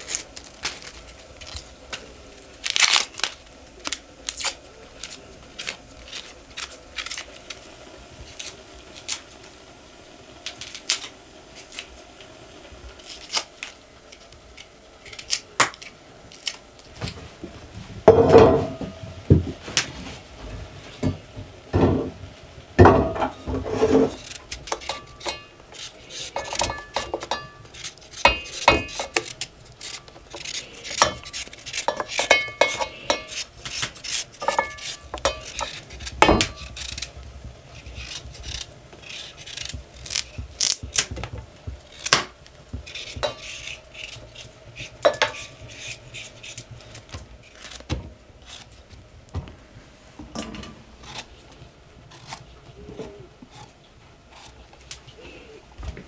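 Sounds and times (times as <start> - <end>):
kitchen utensils knocking and scraping: 22.8 - 25.5, 26.2 - 27.6, 31.0 - 36.7, 42.9 - 43.7, 45.0 - 45.5.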